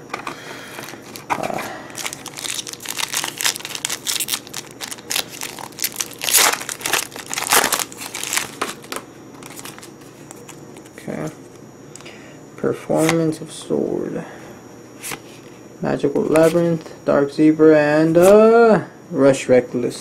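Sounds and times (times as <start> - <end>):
foil wrapper crinkling: 0.2 - 11.0.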